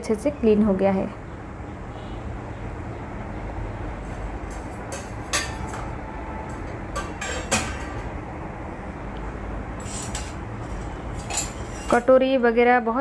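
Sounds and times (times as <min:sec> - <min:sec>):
metal dishes clinking: 0:04.5 - 0:08.2, 0:09.8 - 0:12.2.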